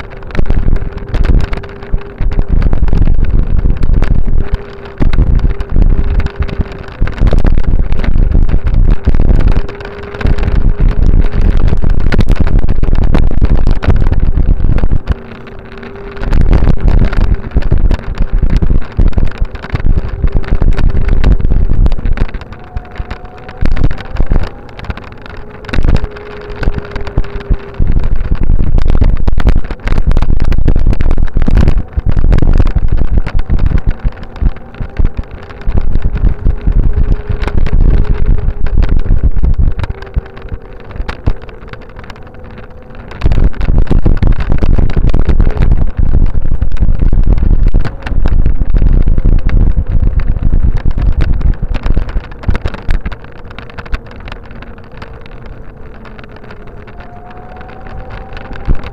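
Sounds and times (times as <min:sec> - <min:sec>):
faint steady whine: 0:00.0 - 0:58.9
sharp clicks and knocks: 0:00.0 - 0:58.9
wind buffeting microphone: 0:00.0 - 0:58.9.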